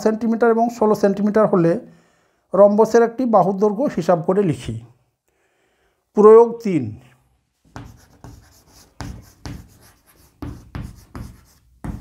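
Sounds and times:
chalk writing on blackboard: 7.6s - 12.0s.

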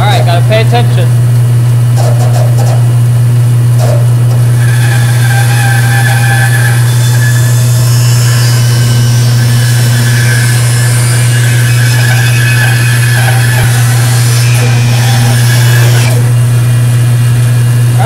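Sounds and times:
bandsaw motor hum: 0.0s - 18.0s
bandsaw blade cutting wood: 3.8s - 18.0s.

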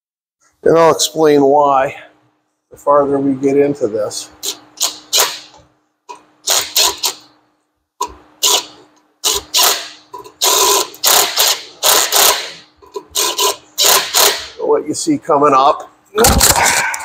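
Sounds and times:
cordless drill bursts: 4.4s - 5.4s, 6.4s - 7.2s, 8.4s - 14.5s.

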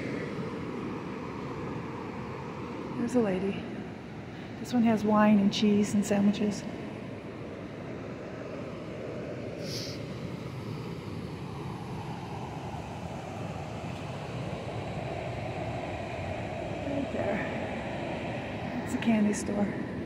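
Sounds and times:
high hiss: 9.6s - 10.0s.

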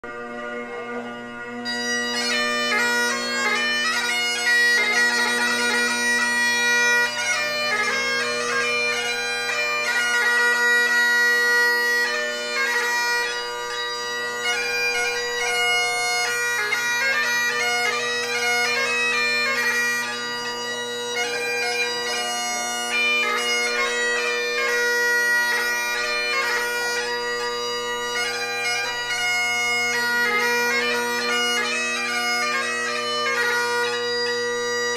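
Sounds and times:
bagpipe chanter melody: 0.0s - 34.9s
bagpipe drones: 0.0s - 34.9s.

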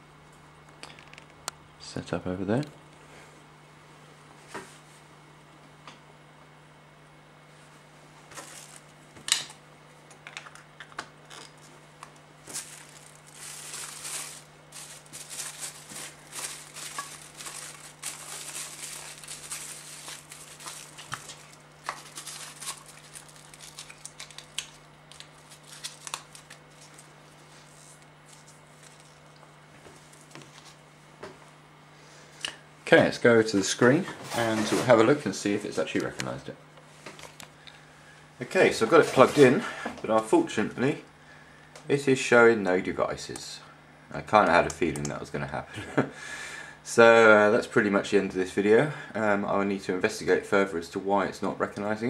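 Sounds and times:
faint steady hum: 0.0s - 52.0s
crinkling and rustling: 8.3s - 8.9s, 10.2s - 30.8s.

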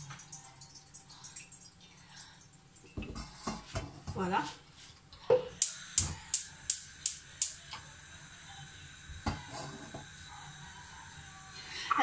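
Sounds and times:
gas flame hissing: 5.4s - 12.0s
gas hob igniter clicking: 5.6s - 7.8s.

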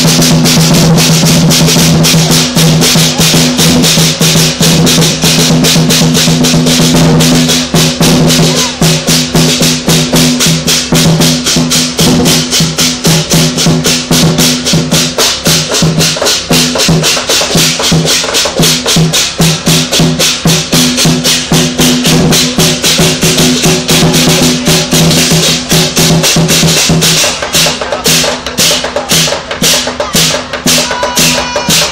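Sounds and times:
big drum: 0.0s - 31.9s
rapid cymbal clashes: 0.0s - 31.9s
gong ringing: 30.7s - 31.9s.

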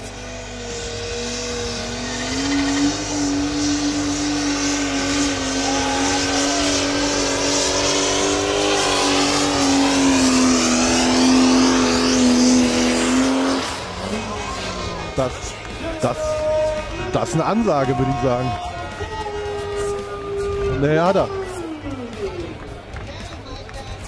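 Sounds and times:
pulling tractor engine at full throttle: 0.0s - 24.0s.

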